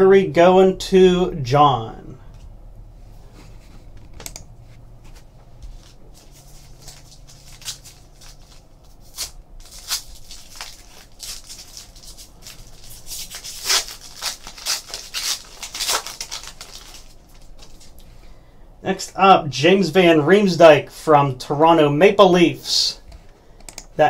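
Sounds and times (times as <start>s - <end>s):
foil wrapper crinkling: 6.2s - 18.0s.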